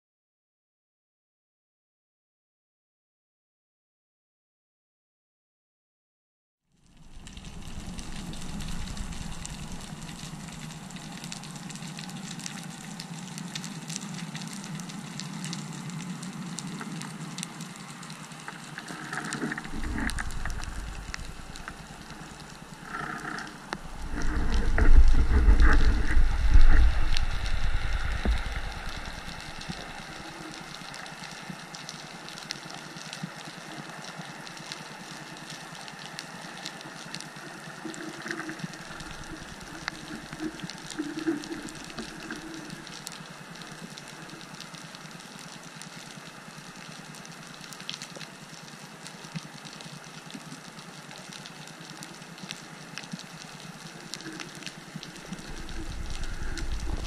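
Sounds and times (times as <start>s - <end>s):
faint clicks and crackles: 6.8s - 57.0s
underwater hiss: 18.8s - 31.6s, 54.2s - 57.0s.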